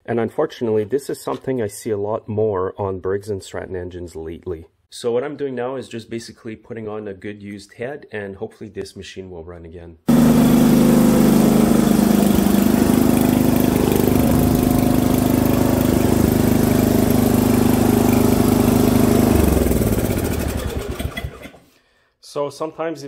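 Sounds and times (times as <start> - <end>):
snowblower engine running: 10.1 - 21.6.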